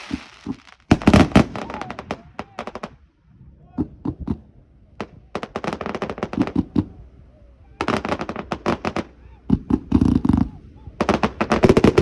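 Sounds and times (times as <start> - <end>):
fireworks bangs and pops: 0.0 - 3.0, 3.8 - 7.0, 7.8 - 12.0.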